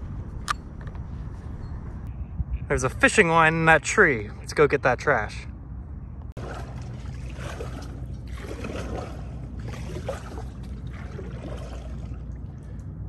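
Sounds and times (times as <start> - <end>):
water trickling and splashing: 6.4 - 13.0.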